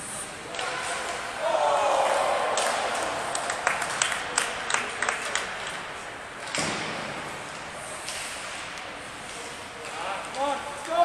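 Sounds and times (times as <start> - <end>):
arena noise hiss: 0.0 - 4.7
hockey sticks and puck clicking: 2.0 - 11.0.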